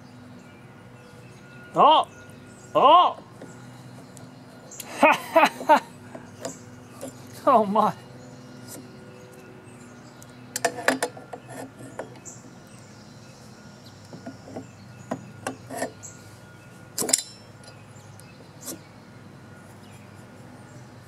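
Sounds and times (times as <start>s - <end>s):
wrench clicks and clanks on metal: 10.5s - 12.3s, 17.0s - 17.8s.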